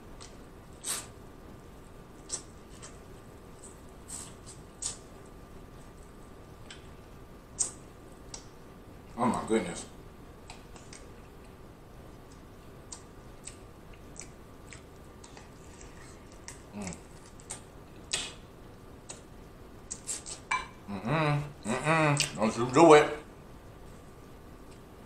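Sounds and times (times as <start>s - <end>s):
biting and mouth sounds: 2.2s - 3.0s, 12.2s - 18.4s.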